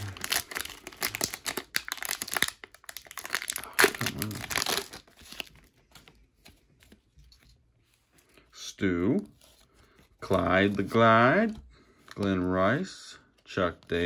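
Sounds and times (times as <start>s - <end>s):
foil pack tearing and crinkling: 0.0s - 5.5s.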